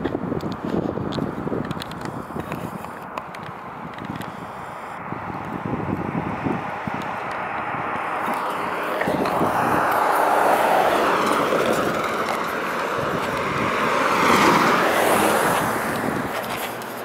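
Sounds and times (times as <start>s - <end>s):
cars passing: 0.0s - 17.0s.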